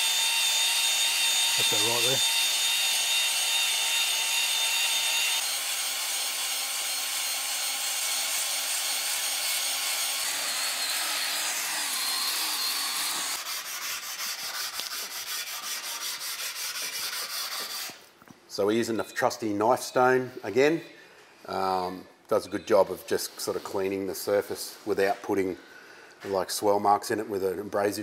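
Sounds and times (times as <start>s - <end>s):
cordless drill spinning: 0.0s - 13.4s
stone rubbing on metal: 13.2s - 18.0s.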